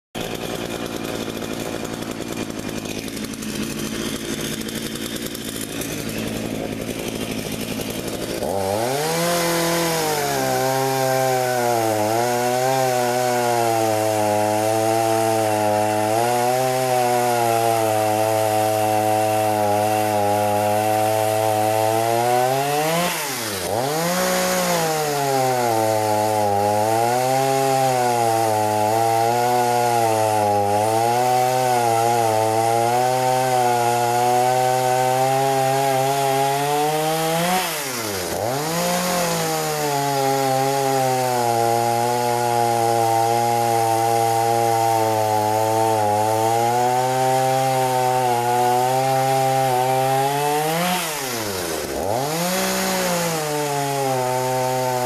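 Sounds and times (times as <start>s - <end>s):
chainsaw cutting through log: 0.0s - 55.0s.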